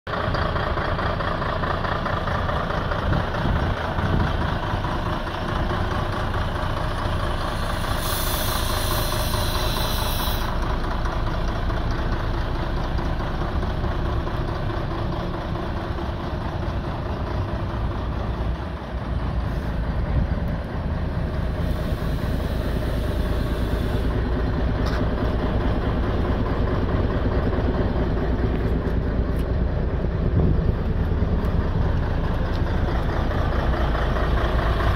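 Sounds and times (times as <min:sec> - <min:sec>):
diesel truck engine idling: 0:00.1 - 0:34.9
short hiss of air: 0:07.5 - 0:10.6, 0:21.5 - 0:24.2.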